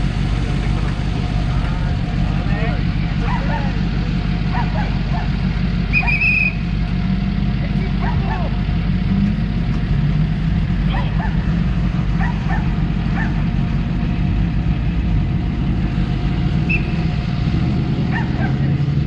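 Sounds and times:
vehicle engines rumbling: 0.0 - 19.0
dog barking: 3.2 - 3.8, 4.5 - 5.4, 8.0 - 8.6, 10.9 - 11.5, 12.2 - 13.5, 18.1 - 18.7.

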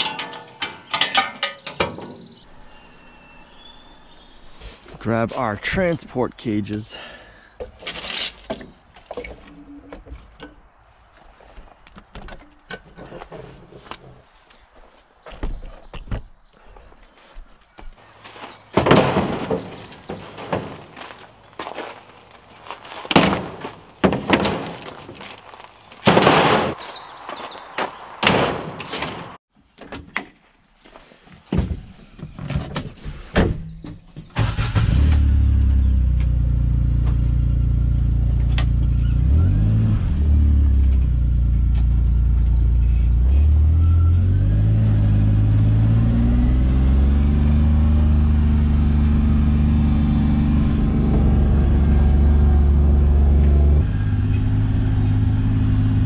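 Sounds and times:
vehicle driving over gravel: 18.0 - 29.4
plastic crates knocking and clattering: 18.3 - 21.2, 23.0 - 26.8
utility vehicle engine: 34.4 - 56.0.

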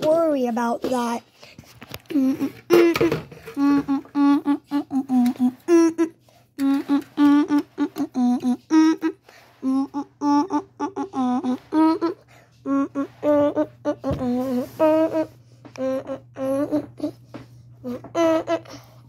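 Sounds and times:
person humming a tune: 2.0 - 19.0.

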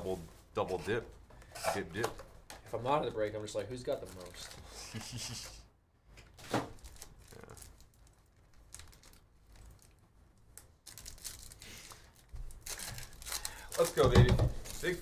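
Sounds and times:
foil wrappers crinkling and tearing: 3.9 - 4.7, 6.7 - 10.0, 10.6 - 15.0.

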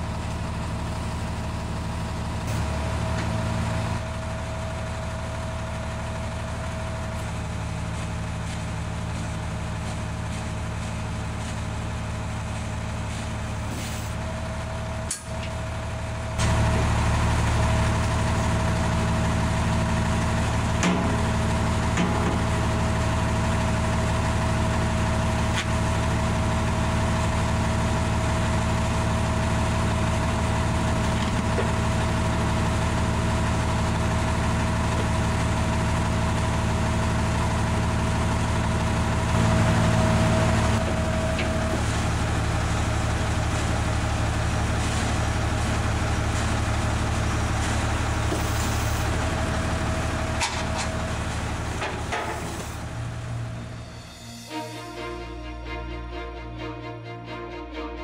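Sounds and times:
tractor engine idling: 0.0 - 54.0
high whine: 53.2 - 58.0.

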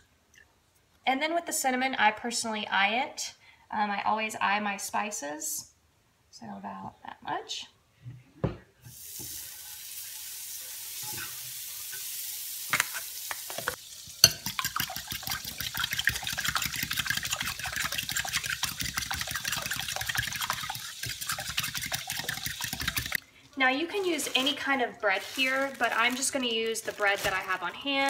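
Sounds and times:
whisk clinking against glass bowl: 14.2 - 23.2.

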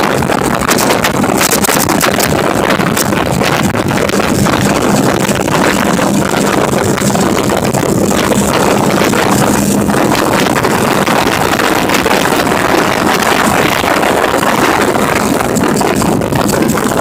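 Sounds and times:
motorcycle engine and road noise: 0.0 - 17.0
wind rush on microphone: 0.0 - 17.0.

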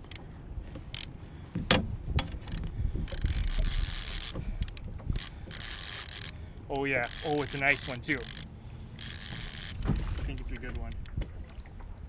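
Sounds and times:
fishing reel clicking and ratcheting: 0.0 - 0.2, 0.9 - 1.1, 2.2 - 11.2
wind rumble on microphone: 0.0 - 8.2, 9.0 - 12.0
high buzzing of reel: 2.5 - 4.4, 5.1 - 9.8.

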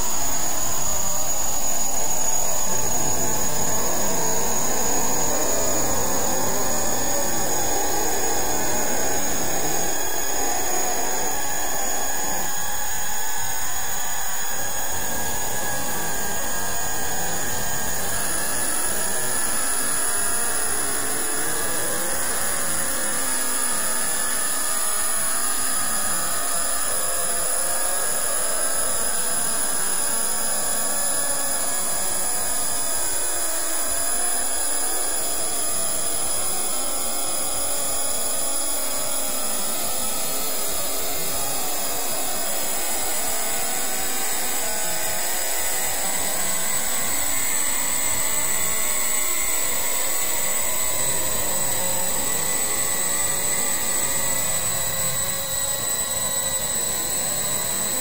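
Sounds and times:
faint wavering tones: 0.0 - 28.3, 45.2 - 58.0
steady rushing noise: 1.5 - 22.7.

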